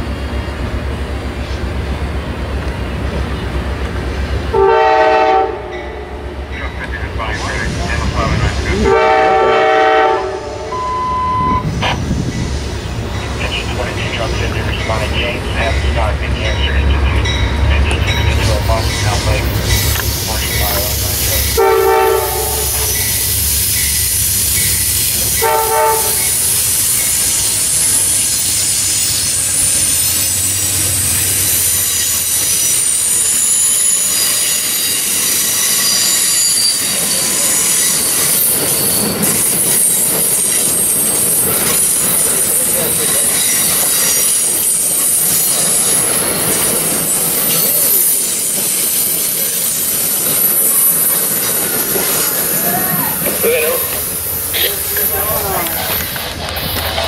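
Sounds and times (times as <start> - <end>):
diesel locomotive engine rumble: 0.0 - 57.0
rail noise: 0.0 - 57.0
train horn blasts: 4.5 - 6.2, 8.8 - 11.6, 21.5 - 23.0, 25.4 - 26.3
train wheel squeal: 14.7 - 54.4.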